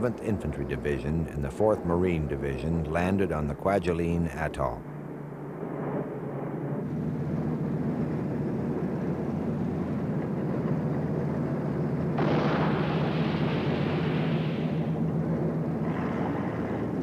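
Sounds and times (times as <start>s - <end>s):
low engine drone: 0.0s - 17.0s
loud explosion rush: 12.2s - 17.0s.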